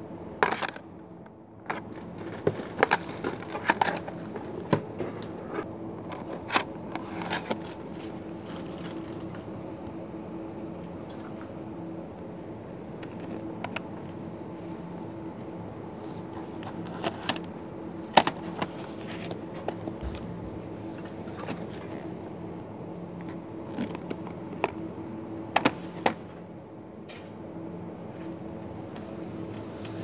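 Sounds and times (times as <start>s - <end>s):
steady low hum: 0.0s - 30.0s
plastic containers clacking: 1.7s - 5.2s.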